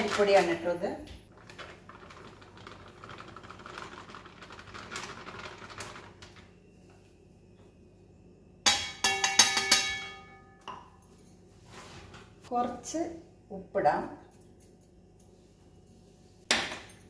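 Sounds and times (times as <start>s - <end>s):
steel tumbler clanking on plate: 8.7s - 10.8s.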